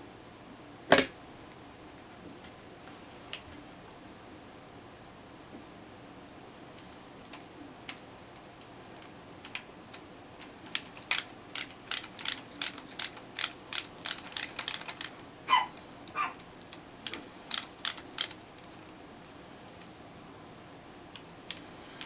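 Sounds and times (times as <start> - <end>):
screwdriver clicking on screws: 10.6 - 15.2, 16.0 - 18.8.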